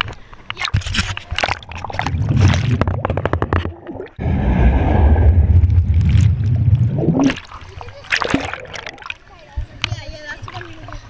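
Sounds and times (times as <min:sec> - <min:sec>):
pool water splashing: 0:01.3 - 0:11.0
muffled underwater rumble: 0:01.6 - 0:09.1.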